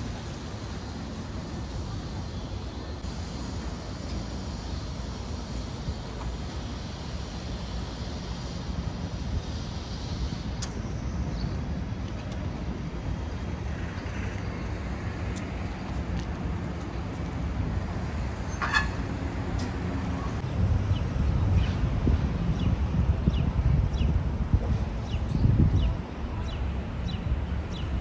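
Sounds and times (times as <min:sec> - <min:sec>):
road traffic rumble: 0:00.0 - 0:28.0.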